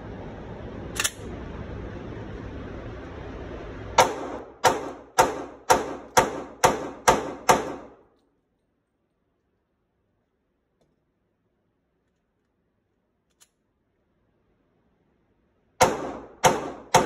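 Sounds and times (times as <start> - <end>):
steady background noise: 0.0 - 17.0
pistol shots indoors: 4.0 - 8.2, 15.8 - 17.0.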